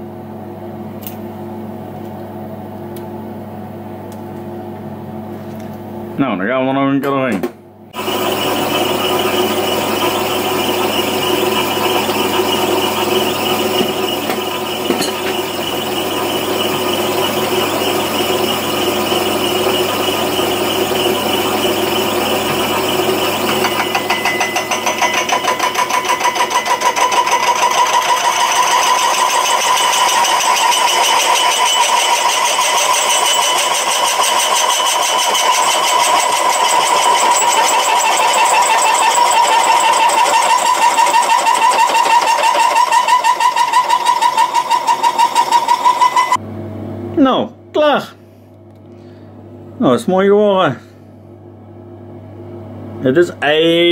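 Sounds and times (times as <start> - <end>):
lathe boring metal: 8.0 - 46.4.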